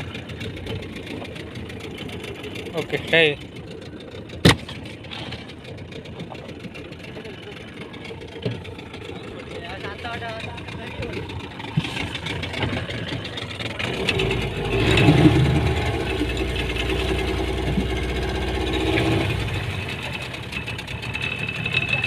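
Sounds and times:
outboard motor running: 0.0 - 22.0.

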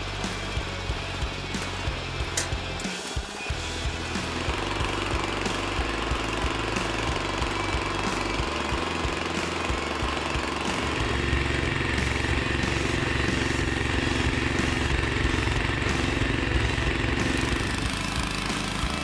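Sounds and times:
small gasoline engine running: 0.0 - 19.0.

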